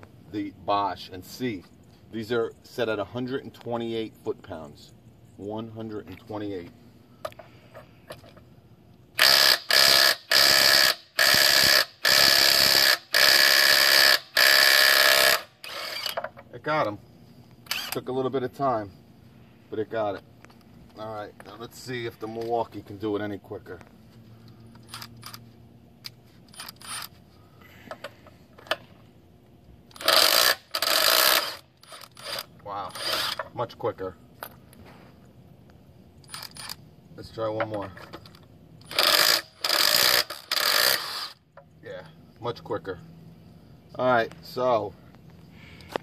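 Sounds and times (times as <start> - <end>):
impact wrench hammering: 9.2 - 16.3.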